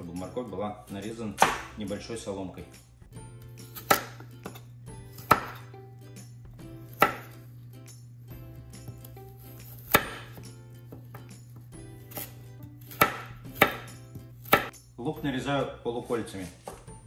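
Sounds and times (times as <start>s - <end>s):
knife chopping on plastic board: 1.4s - 1.8s, 3.7s - 5.7s, 6.9s - 7.4s, 8.8s - 14.8s.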